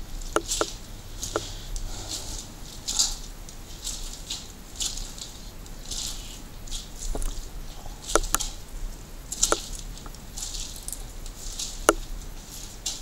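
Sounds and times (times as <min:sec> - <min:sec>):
debris snapping underfoot: 0:00.0 - 0:13.0
footsteps crunching on gritty floor: 0:00.3 - 0:08.6, 0:09.3 - 0:13.0.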